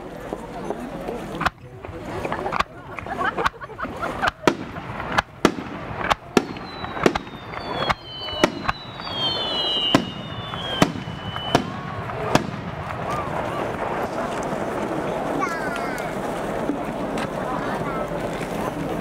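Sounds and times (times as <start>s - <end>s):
fireworks shells bursting: 1.4s - 14.8s
high whistling fireworks tones: 3.3s - 17.1s.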